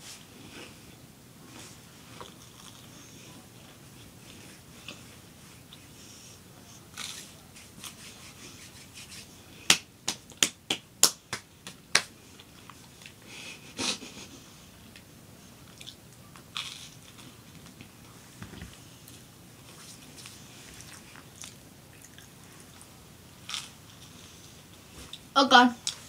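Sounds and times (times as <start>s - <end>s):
crunchy toast chewing: 15.7s - 17.9s, 19.8s - 24.2s.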